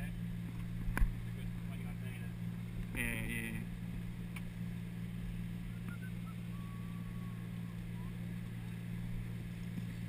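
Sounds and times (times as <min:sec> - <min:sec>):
boat diesel engine running: 0:00.0 - 0:10.0
faint high calls: 0:05.6 - 0:08.3.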